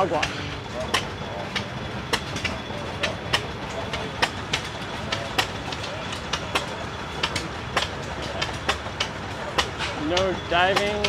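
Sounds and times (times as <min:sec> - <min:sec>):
old engines clicking: 0:00.0 - 0:11.0.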